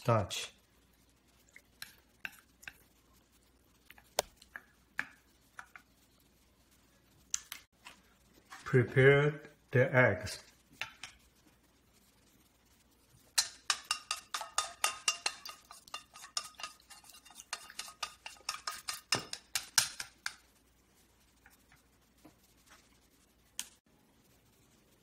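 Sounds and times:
chopsticks beating eggs in metal bowl: 1.1s - 6.5s, 10.2s - 23.8s.

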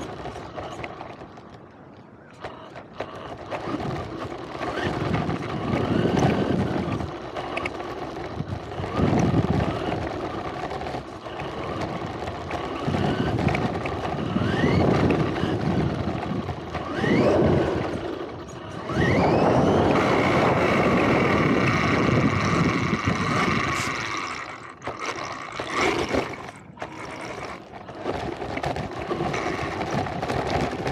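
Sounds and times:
rc car motor whine: 0.0s - 1.5s, 2.3s - 30.9s
tyres rumbling on ground: 0.0s - 30.9s.

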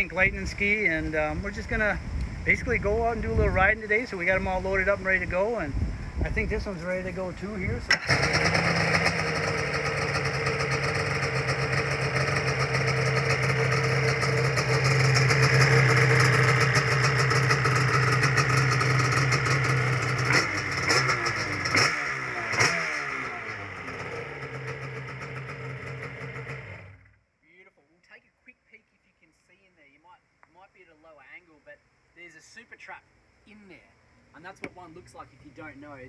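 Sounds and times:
jet ski engine running: 7.9s - 24.4s.

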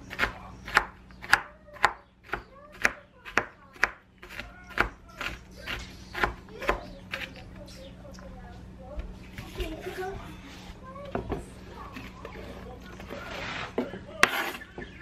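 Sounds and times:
knife chopping on wooden board: 0.0s - 7.4s, 13.8s - 14.9s.

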